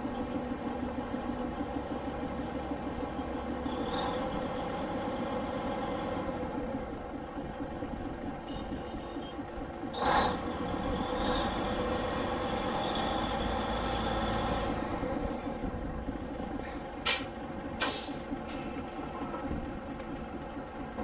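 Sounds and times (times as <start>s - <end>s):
heavy engine running: 0.0s - 21.0s
compressed air hiss: 17.1s - 18.2s.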